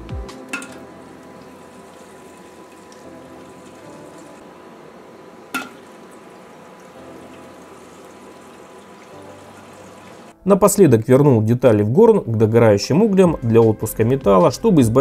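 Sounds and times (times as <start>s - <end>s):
hot steel sizzling in oil: 0.5s - 10.4s.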